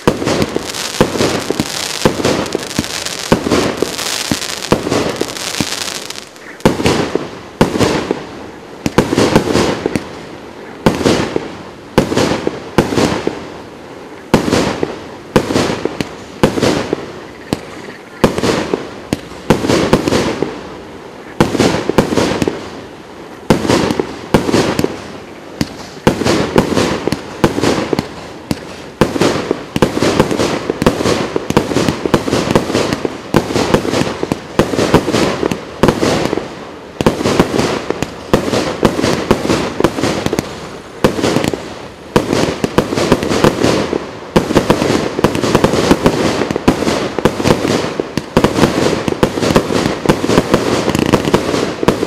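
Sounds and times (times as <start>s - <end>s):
firework cake bangs: 0.0s - 8.2s.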